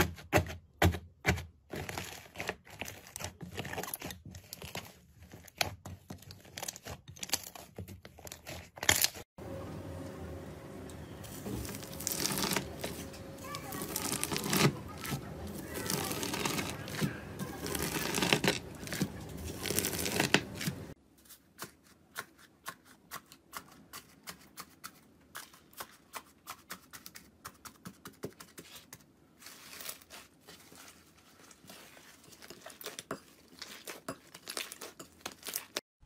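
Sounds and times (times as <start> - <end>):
knife slicing crinkling foil: 11.3 - 27.3, 29.4 - 35.8.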